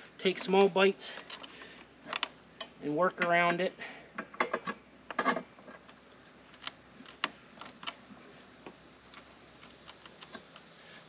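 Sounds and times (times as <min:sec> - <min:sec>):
crickets chirping: 0:00.0 - 0:11.0
tire lever clicks and knocks: 0:04.2 - 0:08.0.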